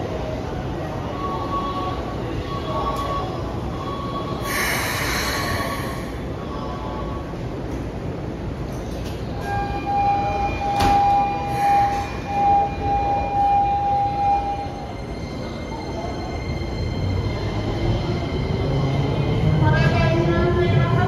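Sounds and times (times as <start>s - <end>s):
station platform noise: 0.0s - 21.0s.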